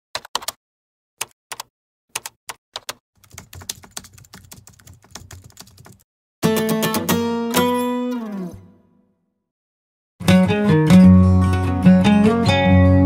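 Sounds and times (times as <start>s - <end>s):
computer keyboard typing: 0.2s - 0.6s, 1.2s - 6.0s
acoustic guitar chord strummed: 6.4s - 8.8s.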